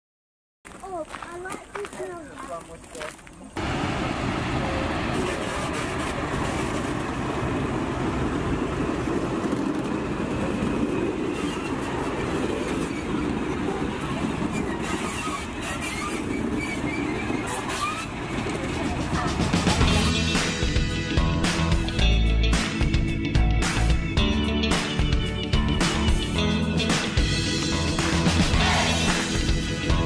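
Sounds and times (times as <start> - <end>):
wheel and rail noise: 0.7 - 20.5
diesel locomotive engine rumble: 3.6 - 22.5.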